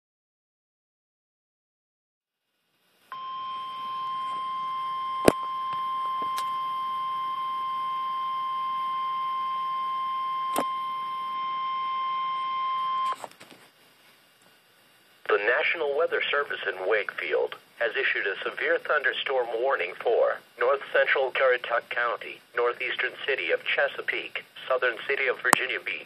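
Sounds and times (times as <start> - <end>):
steady high alarm beep: 3.1 - 13.2.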